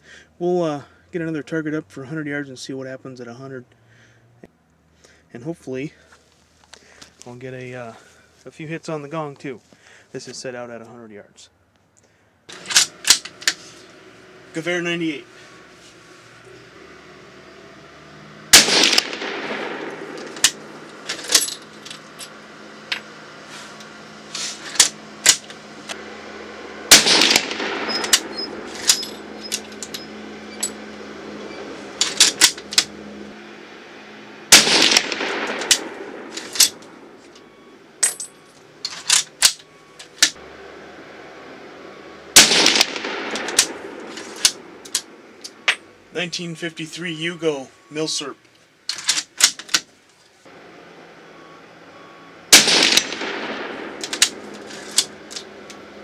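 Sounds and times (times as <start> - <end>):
rifle shots echoing: 18.5 - 21.0, 26.8 - 30.9, 34.5 - 37.1, 42.3 - 44.8, 52.5 - 54.5.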